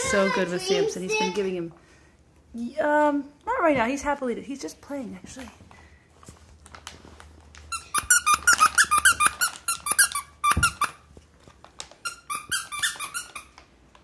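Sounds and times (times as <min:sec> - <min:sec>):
dog toy squeaking: 0:07.7 - 0:11.1, 0:12.0 - 0:13.6.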